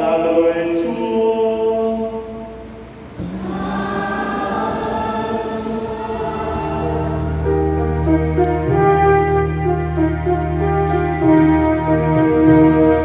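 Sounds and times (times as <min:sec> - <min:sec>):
church choir singing: 0:00.1 - 0:11.4
deep held bass notes: 0:03.0 - 0:13.0
instrumental accompaniment: 0:03.0 - 0:13.0.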